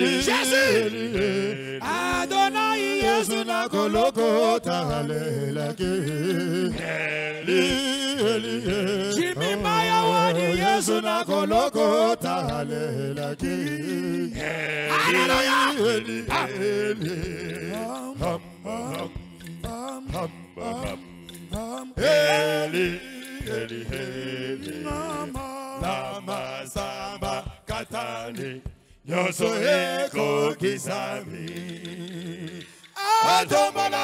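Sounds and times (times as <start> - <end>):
men singing together: 0.0 - 34.0
sharp percussive beats: 0.0 - 34.0.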